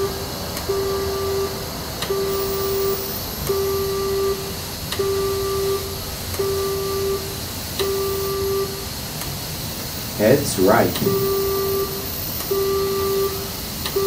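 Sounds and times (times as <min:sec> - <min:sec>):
single-pitched beep: 0:02.1 - 0:08.8, 0:11.0 - 0:14.0.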